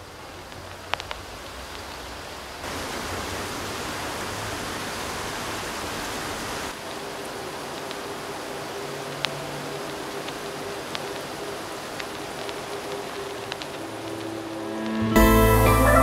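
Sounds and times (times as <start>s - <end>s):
rain falling: 0.0s - 16.0s
sharp drip clicks: 7.7s - 8.1s, 9.2s - 14.3s.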